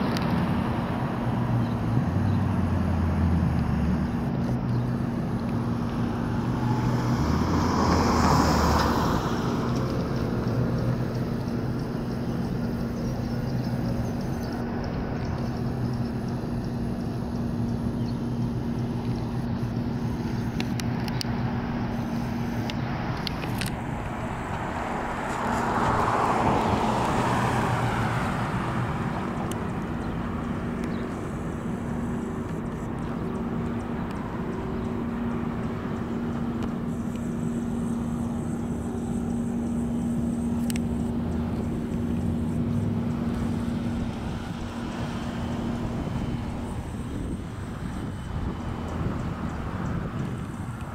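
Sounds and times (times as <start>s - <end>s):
car passing: 0.0s - 50.9s
steady low hum: 0.0s - 50.9s.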